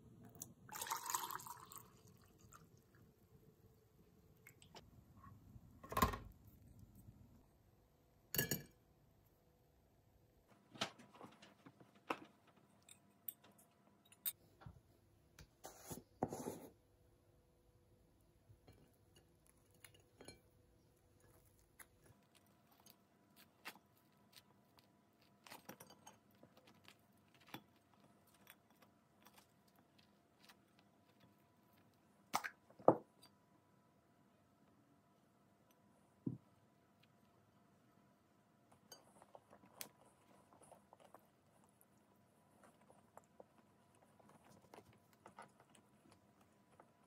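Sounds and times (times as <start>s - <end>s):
spoon clinking glass jar: 8.4s - 8.8s.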